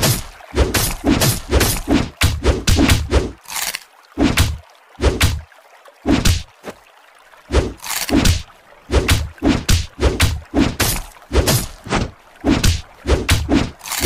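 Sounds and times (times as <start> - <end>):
cartoon punching whacks and thuds: 0.0 - 3.2, 4.2 - 5.4, 6.1 - 6.5, 8.1 - 8.4, 9.0 - 13.8.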